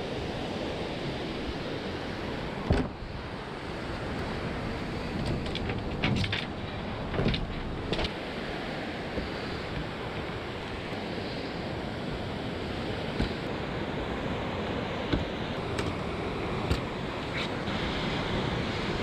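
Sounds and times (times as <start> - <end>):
surf breaking on beach: 7.7 - 19.0.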